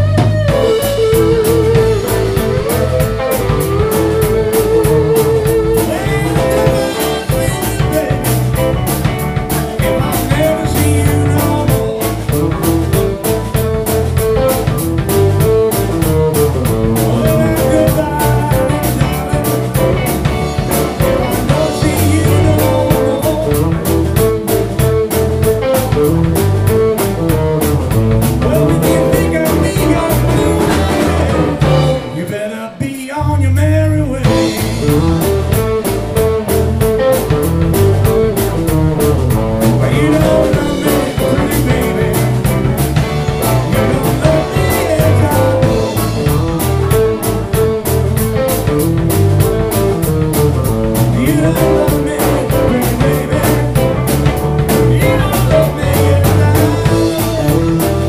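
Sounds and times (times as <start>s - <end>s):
blues band playing: 0.0s - 58.0s.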